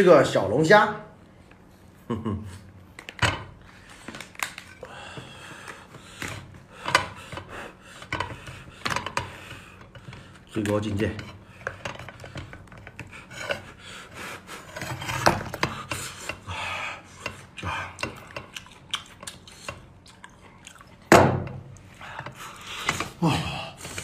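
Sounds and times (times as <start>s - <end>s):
chewing: 17.5s - 21.1s.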